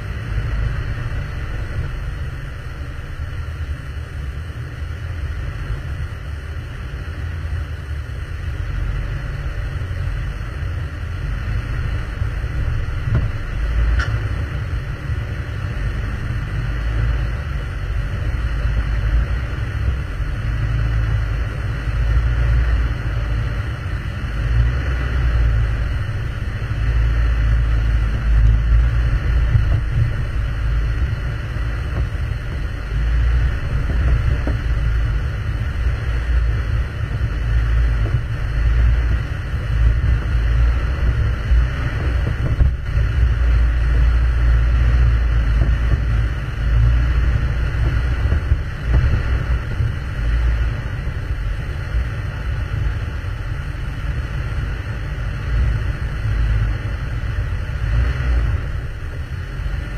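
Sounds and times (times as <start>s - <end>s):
off-road vehicle engine rumble: 0.0s - 59.9s
rough-road jostling: 0.0s - 59.9s.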